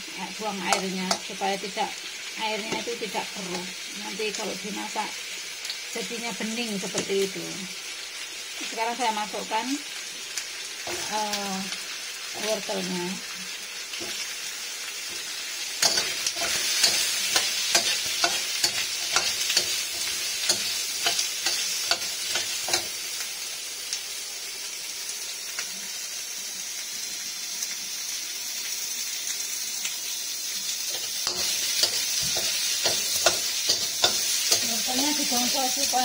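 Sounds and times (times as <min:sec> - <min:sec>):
vegetables sizzling in wok: 0:00.0 - 0:36.0
metal spatula scraping wok: 0:15.1 - 0:23.0, 0:30.9 - 0:35.5.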